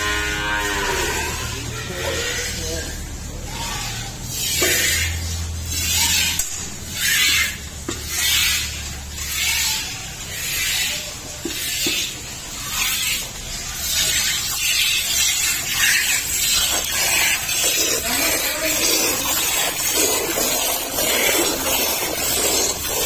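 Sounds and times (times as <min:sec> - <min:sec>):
milk squirting into metal bucket: 0:10.3 - 0:23.0.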